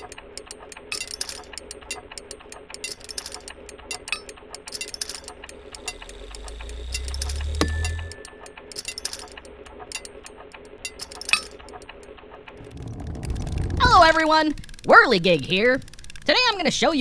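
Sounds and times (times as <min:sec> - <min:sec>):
rapid mechanical clicking and rattling: 0:00.0 - 0:17.0
sharp ringing clank: 0:06.9 - 0:09.4
low rumble: 0:12.3 - 0:14.9.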